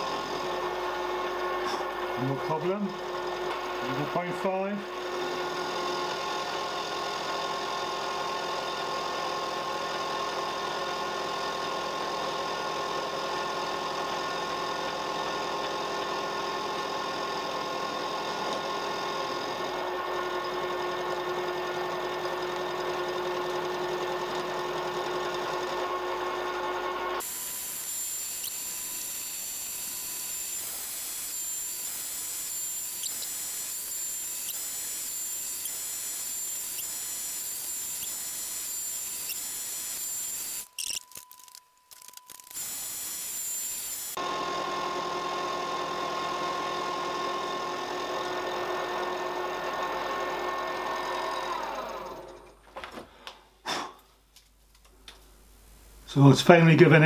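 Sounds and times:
milling machine cutting metal: 17.4 - 52.4.

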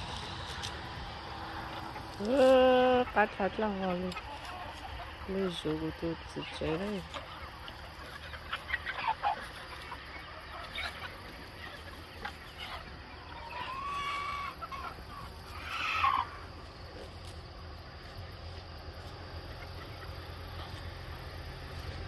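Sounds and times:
chickens clucking: 0.0 - 22.0
chicken squawk: 1.6 - 17.1, 19.4 - 21.1.

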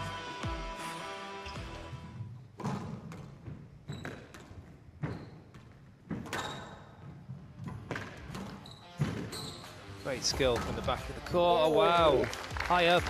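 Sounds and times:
background music: 0.0 - 2.7, 7.3 - 13.0
shoes squeaking on court: 1.4 - 11.0.

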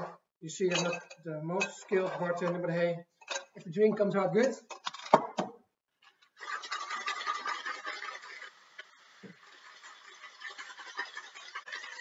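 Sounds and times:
ice rattling in shaker: 6.4 - 12.0.

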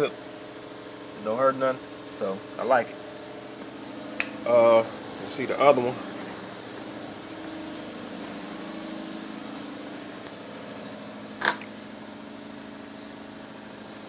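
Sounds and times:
steady mechanical hum: 0.0 - 14.0
sharp click: 11.4 - 11.7.

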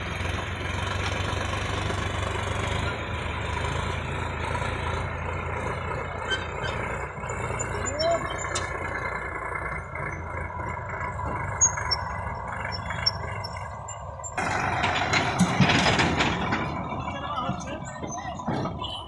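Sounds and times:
tractor diesel engines running: 0.0 - 19.0.

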